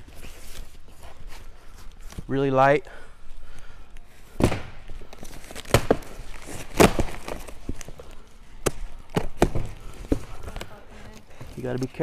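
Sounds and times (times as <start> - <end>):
cardboard boxes thumping: 4.4 - 4.8, 5.5 - 7.9, 8.6 - 10.7
cardboard rustling: 4.4 - 12.0.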